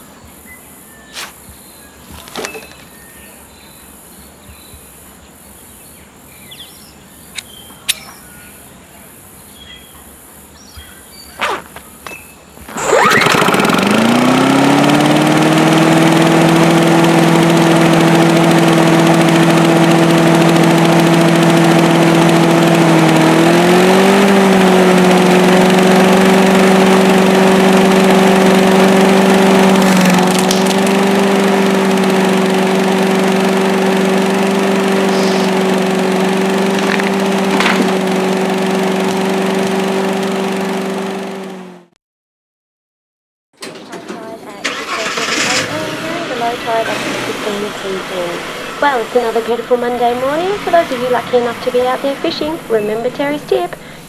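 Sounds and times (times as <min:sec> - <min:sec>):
lawn mower engine: 0:12.7 - 0:41.9, 0:44.6 - 0:54.0.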